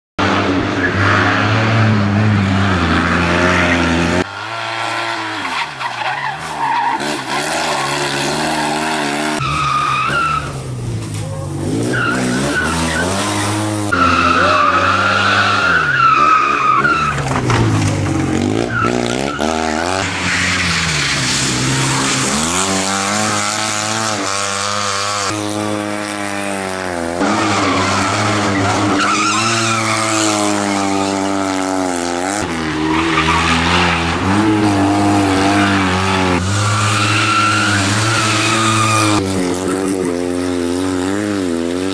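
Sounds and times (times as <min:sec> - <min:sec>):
car engine revving hard: 0:00.2 - 0:09.4, 0:11.6 - 0:17.0, 0:18.2 - 0:41.9
tyre squeal: 0:05.2 - 0:10.6, 0:11.2 - 0:17.3, 0:27.2 - 0:31.4, 0:32.7 - 0:40.3.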